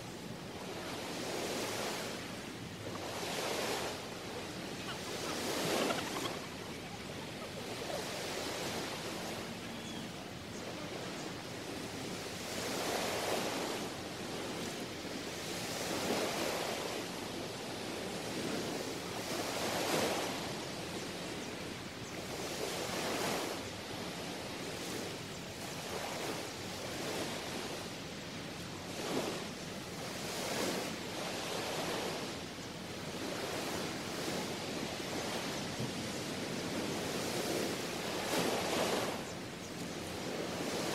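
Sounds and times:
waves washing onto beach: 0:00.0 - 0:40.9.

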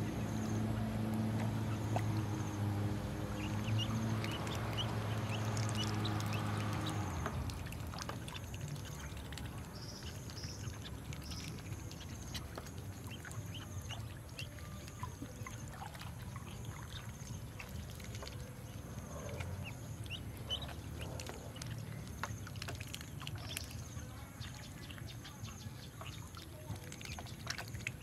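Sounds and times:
ducklings peeping: 0:00.0 - 0:28.0
ducklings splashing in water: 0:00.0 - 0:28.0
low steady hum: 0:00.0 - 0:28.0.

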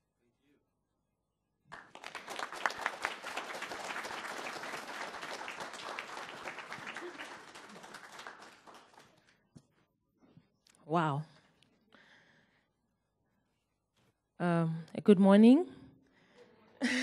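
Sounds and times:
audience applauding: 0:01.7 - 0:09.4.

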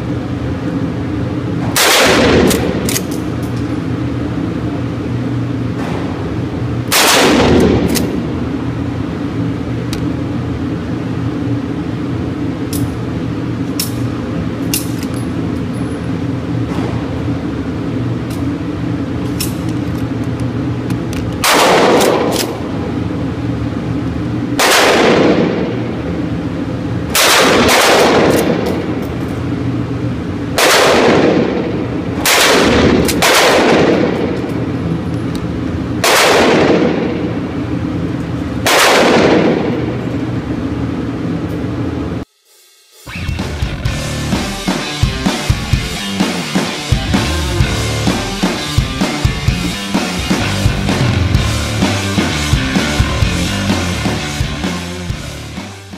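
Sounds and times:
steady low hum: 0:00.0 - 0:55.9
shotgun shots echoing: 0:01.8 - 0:02.9, 0:06.9 - 0:08.0, 0:21.4 - 0:22.5, 0:24.6 - 0:25.7, 0:27.2 - 0:28.6, 0:30.6 - 0:34.4, 0:36.0 - 0:37.2, 0:38.6 - 0:39.9.

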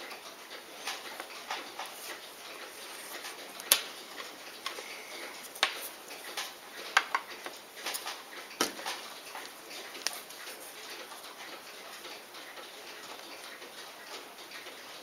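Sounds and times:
small tools clicking and tapping: 0:05.5 - 0:11.2.

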